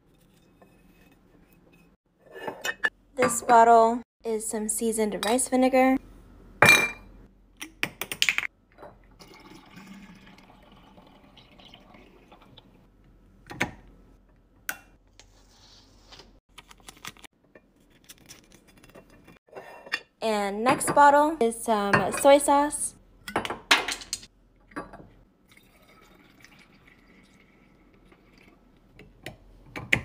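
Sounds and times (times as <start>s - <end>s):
liquid trickling into a bottle: 9.2s - 12.8s, 25.5s - 28.5s.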